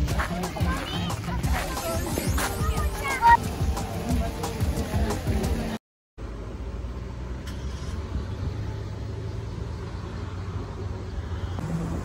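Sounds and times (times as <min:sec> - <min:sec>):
distant road traffic rumble: 0:04.0 - 0:12.0.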